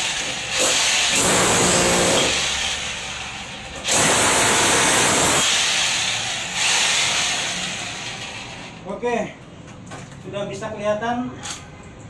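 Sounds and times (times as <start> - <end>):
hammer drill chiselling concrete: 0.0 - 8.8.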